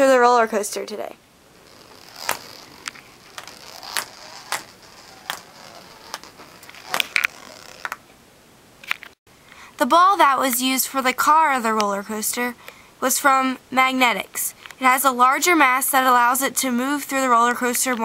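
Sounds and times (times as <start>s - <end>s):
metal ball rolling in plastic tubing: 1.5s - 8.0s.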